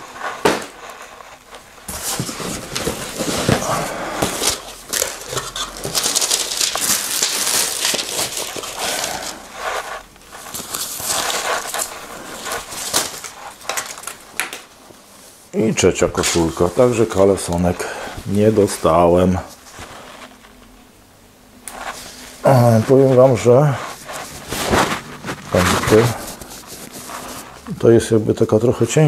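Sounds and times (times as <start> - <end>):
plastic packaging crinkling: 0.0 - 14.8, 21.7 - 27.8.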